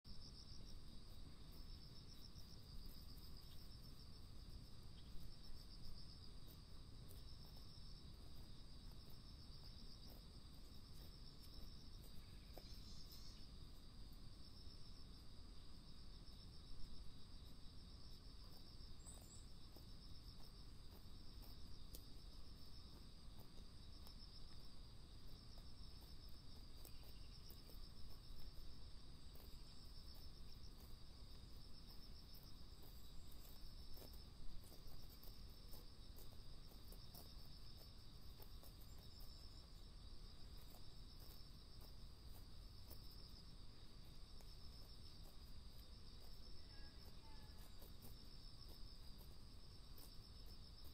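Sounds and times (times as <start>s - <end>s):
chirping insects: 0.0s - 50.9s
soft ticks: 19.2s - 22.3s.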